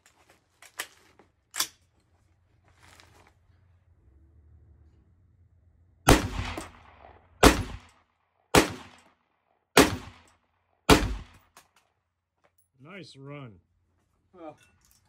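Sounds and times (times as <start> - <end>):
rifle shots with echo: 6.1 - 11.6.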